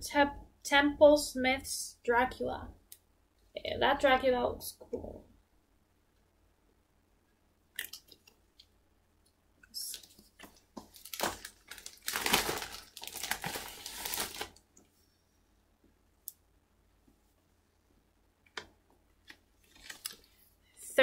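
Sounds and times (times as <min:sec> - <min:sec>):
paper rustling and crinkling: 0:09.8 - 0:14.6, 0:19.6 - 0:20.4.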